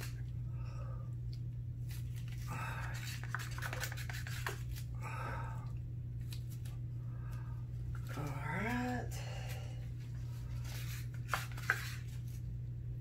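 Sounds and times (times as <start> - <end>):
steady low hum: 0.0 - 13.0
gloved hands rubbing and clicking: 1.9 - 4.9, 10.6 - 12.3.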